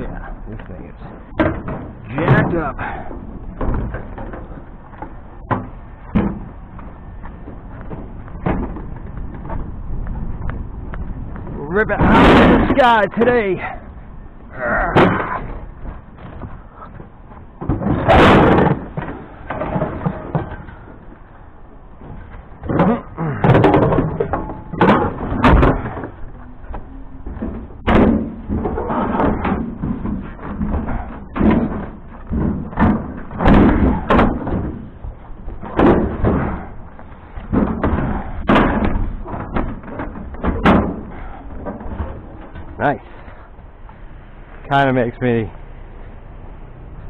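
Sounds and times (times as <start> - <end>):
scrap items banging and clattering: 17.6 - 21.2, 22.0 - 43.5.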